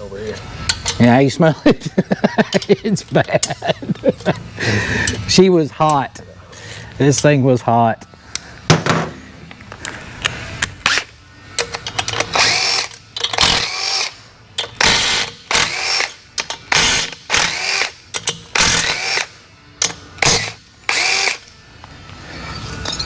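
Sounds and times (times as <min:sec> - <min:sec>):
tool and parts clicking: 0:00.6 - 0:01.0, 0:10.2 - 0:23.0
power drill whirring: 0:12.2 - 0:14.2, 0:14.8 - 0:18.0, 0:20.2 - 0:21.4.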